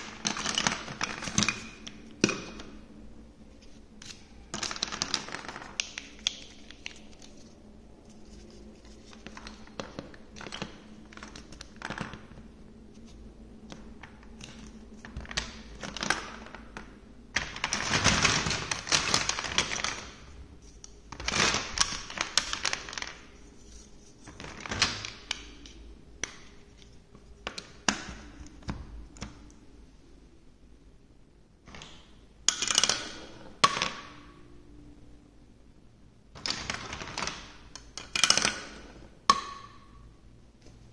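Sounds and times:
plastic blocks clattering: 0.0s - 2.7s, 4.0s - 7.1s, 9.1s - 12.5s, 13.7s - 20.4s, 21.1s - 26.8s, 31.7s - 34.2s, 36.4s - 39.7s
plastic blocks clicking: 31.7s - 34.2s, 36.4s - 39.6s.

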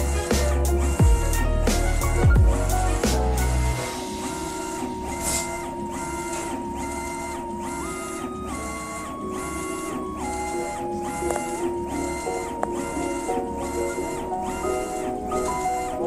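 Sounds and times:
music with heavy bass: 0.0s - 5.6s
stepper motors whining: 0.0s - 16.0s.

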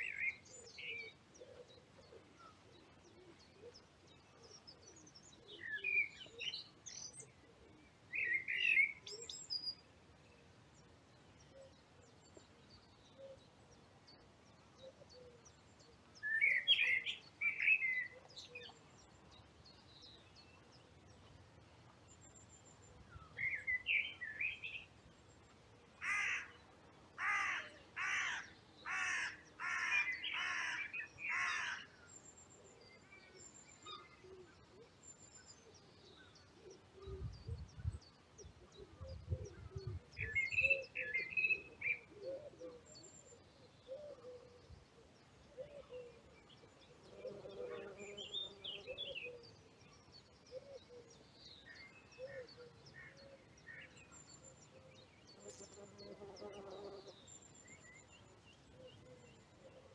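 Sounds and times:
blackbird singing: 0.0s - 9.9s, 14.8s - 21.2s, 22.1s - 25.0s, 27.2s - 59.9s
crow cawing: 26.0s - 26.5s, 27.2s - 31.9s.

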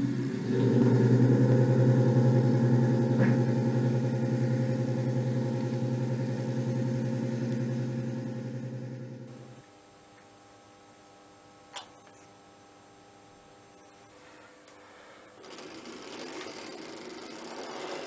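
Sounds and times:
model railway electric hum: 0.0s - 9.7s, 14.2s - 18.0s.

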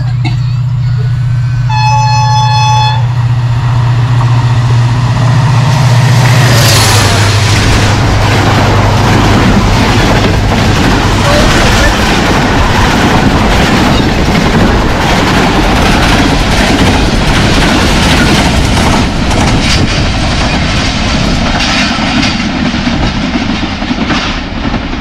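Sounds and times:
train wheels clattering: 5.7s - 25.0s.

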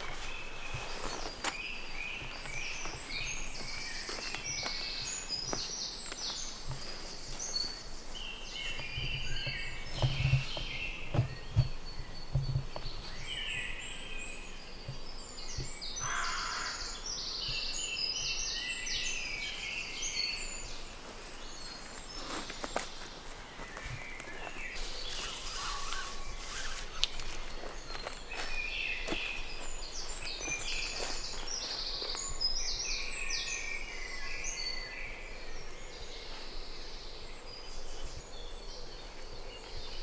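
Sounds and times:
songbirds chirping: 0.0s - 40.0s
dull thumps: 9.0s - 12.9s.

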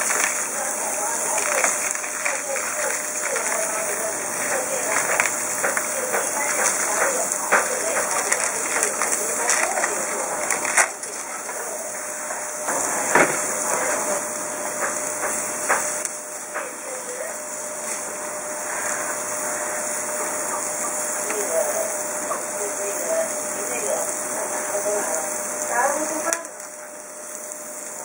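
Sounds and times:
steaks sizzling on a grill: 0.0s - 28.0s.

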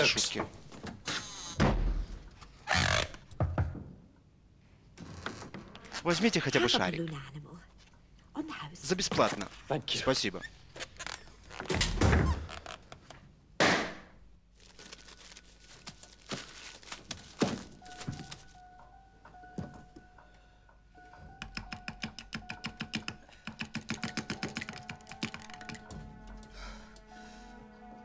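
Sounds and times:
door shutting with thump: 1.6s - 2.2s, 11.7s - 12.5s
fast regular ticking: 21.5s - 25.9s.

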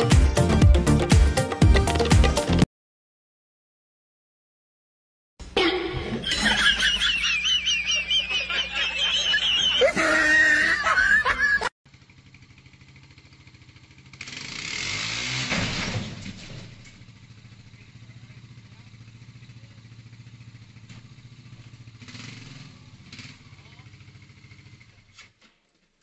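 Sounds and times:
loud high-pitched laughter: 5.6s - 11.7s.

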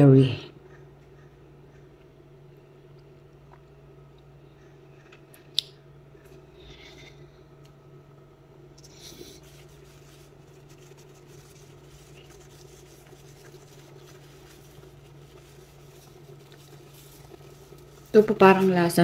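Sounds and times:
steady low hum: 0.0s - 19.0s
paper napkin rustling: 8.8s - 19.0s.

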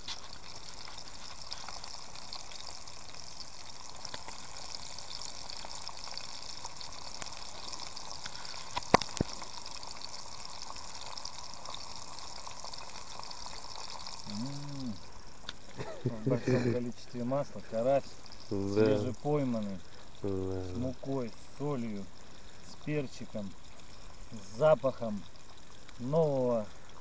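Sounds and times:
fish sizzling in oil: 0.0s - 27.0s
sharp oil pops: 8.8s - 9.5s.

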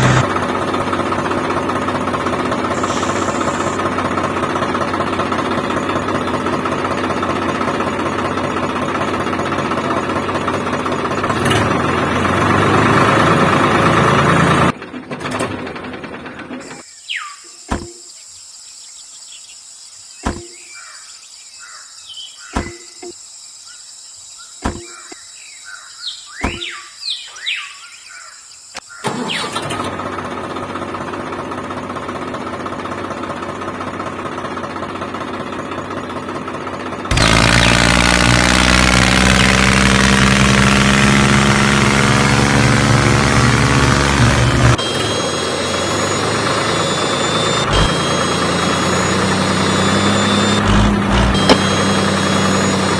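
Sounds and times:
steady engine: 0.0s - 16.9s, 20.2s - 20.6s, 29.1s - 52.9s
short bird chirps: 16.6s - 29.4s.

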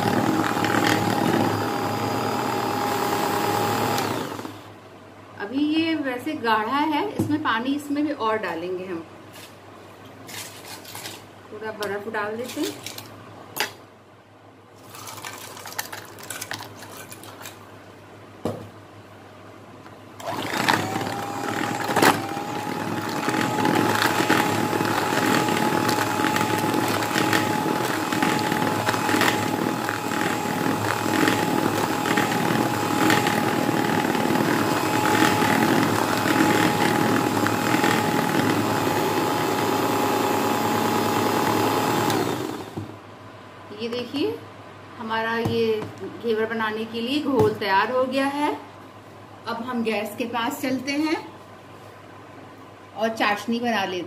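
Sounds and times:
electric hand mixer whine: 0.0s - 4.6s, 20.2s - 42.9s.

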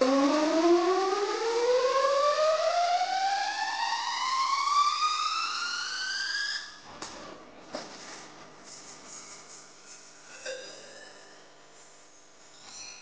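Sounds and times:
rising synth tone: 0.0s - 6.8s.

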